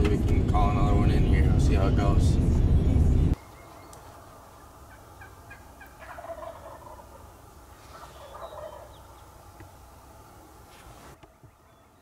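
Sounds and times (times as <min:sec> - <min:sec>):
turkey gobbling: 0:03.4 - 0:09.7.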